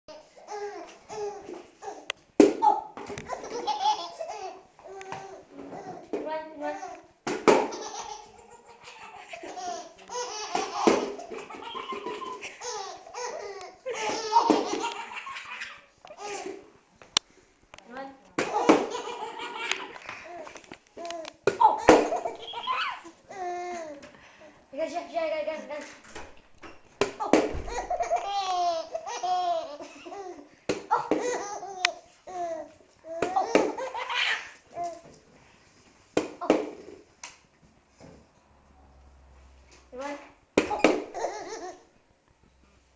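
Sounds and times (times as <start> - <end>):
baby giggling: 3.3 - 5.4, 7.7 - 16.6, 18.5 - 20.5, 21.6 - 23.9, 27.2 - 34.6, 40.7 - 41.9.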